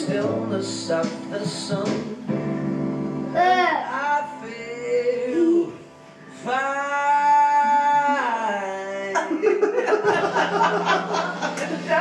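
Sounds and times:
song with singing voice: 0:00.0 - 0:12.0
people clapping: 0:10.2 - 0:12.0.

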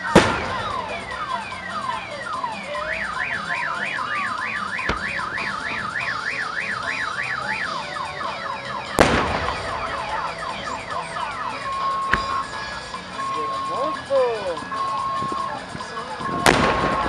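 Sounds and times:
firework bang: 0:00.0 - 0:01.4, 0:04.8 - 0:06.1, 0:09.0 - 0:10.9, 0:12.0 - 0:12.6, 0:16.3 - 0:17.0
electronic alarm siren warbling: 0:00.0 - 0:17.0.

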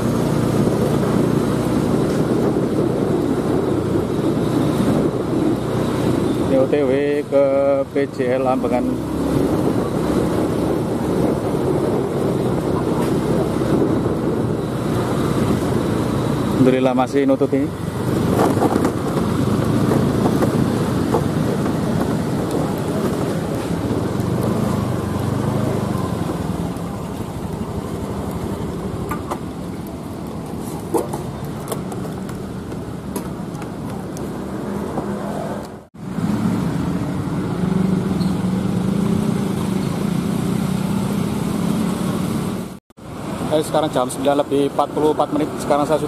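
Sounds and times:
road and wind noise: 0:00.0 - 0:46.0
street traffic passing: 0:00.0 - 0:46.0
motor scooter engine running: 0:18.0 - 0:34.0.

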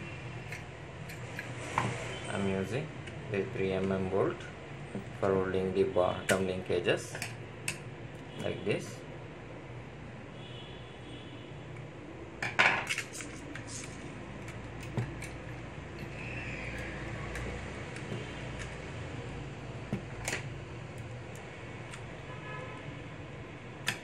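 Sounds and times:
plastic parts clicking and knocking: 0:12.4 - 0:16.1.

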